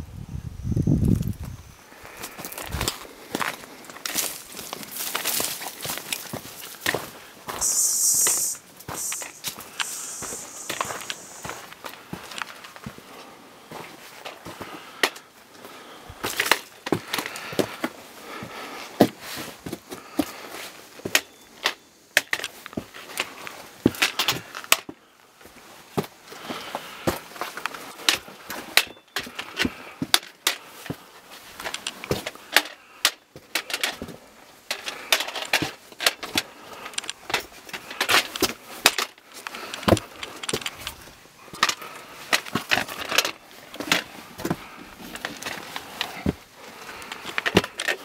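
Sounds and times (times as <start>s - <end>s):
footsteps and scuffs on stone: 2.2s - 13.1s.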